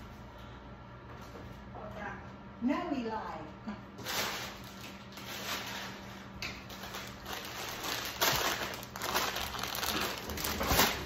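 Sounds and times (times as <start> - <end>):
wrapping crinkling and rustling: 4.0 - 11.0.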